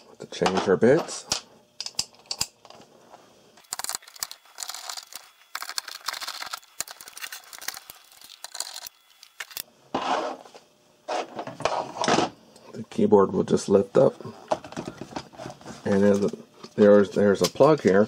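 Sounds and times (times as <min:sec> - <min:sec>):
screwdriver bits clicking and rustling: 0:03.6 - 0:09.6.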